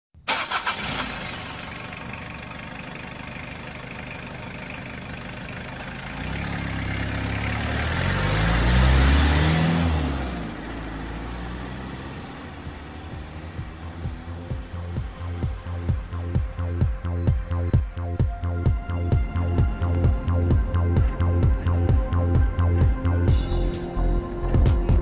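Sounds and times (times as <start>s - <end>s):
vehicle engine revving by: 6.0s - 16.2s.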